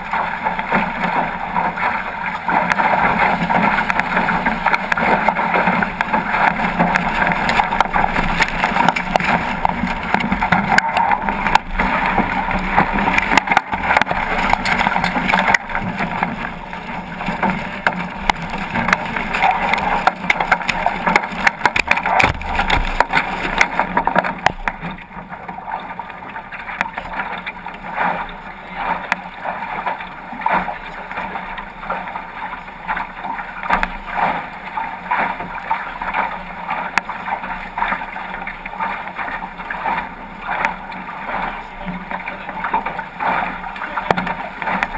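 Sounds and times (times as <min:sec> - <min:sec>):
water rushing along a hull: 0:00.0 - 0:44.9.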